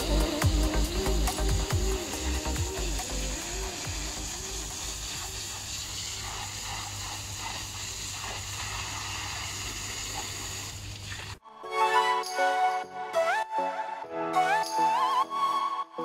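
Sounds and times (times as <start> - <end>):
music: 0.0 - 5.4, 11.4 - 16.0
hose spraying water: 0.0 - 11.4.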